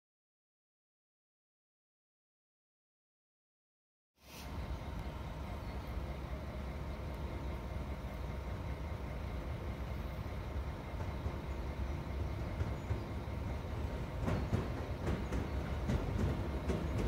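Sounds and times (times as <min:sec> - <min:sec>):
train approaching rumble: 0:04.2 - 0:17.0.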